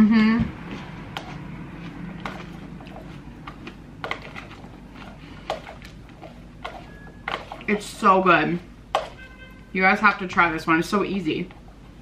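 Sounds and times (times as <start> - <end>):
chewing crunchy food: 0.6 - 7.7.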